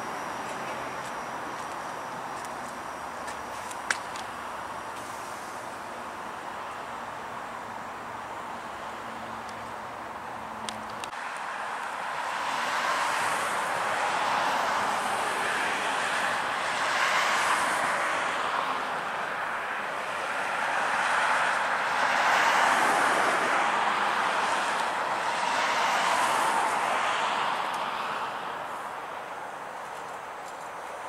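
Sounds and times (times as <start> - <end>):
traffic rushing past: 0.0 - 31.0.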